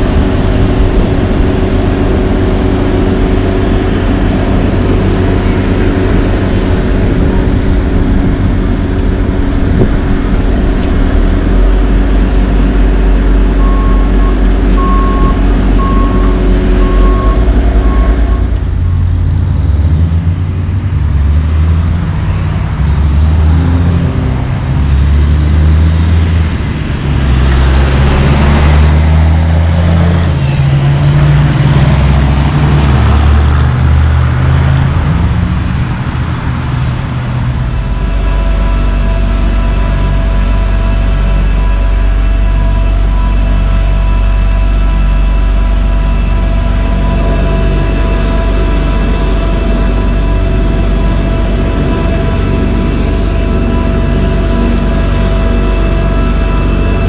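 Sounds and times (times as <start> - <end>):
diesel dump truck accelerating: 0.0 - 57.0
passing car traffic: 0.0 - 57.0
paving machinery engines running: 0.0 - 57.0
backup alarm beeping: 13.6 - 18.5.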